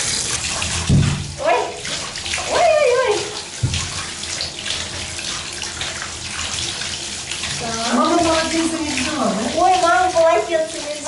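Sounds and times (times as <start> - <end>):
shower water splashing: 0.0 - 11.0
low thump: 0.9 - 1.2.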